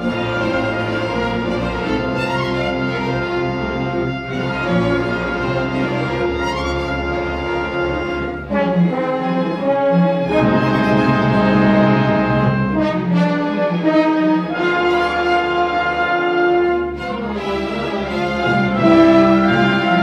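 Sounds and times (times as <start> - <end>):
orchestral brass and strings chords: 0.0 - 20.0.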